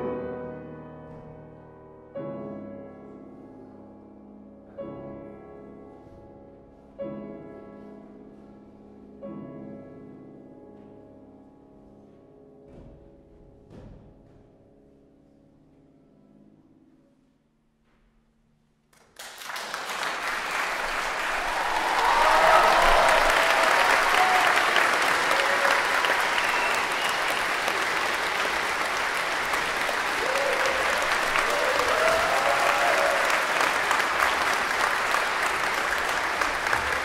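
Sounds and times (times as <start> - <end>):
audience applause: 19.0 - 37.0.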